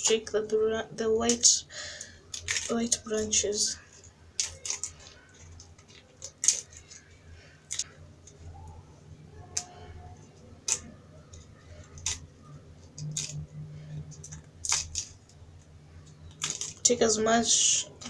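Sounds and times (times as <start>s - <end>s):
low steady hum: 0.0s - 18.0s
spinach leaves snapping: 2.3s - 8.8s, 9.4s - 15.4s, 16.0s - 18.0s.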